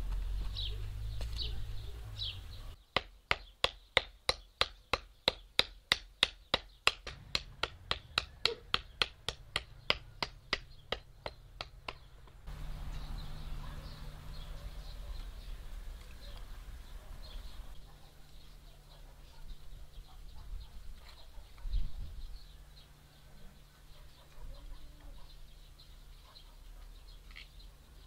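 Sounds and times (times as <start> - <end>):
birds chirping: 0.0 - 28.0
hammer tapping on wooden pole: 3.0 - 12.4.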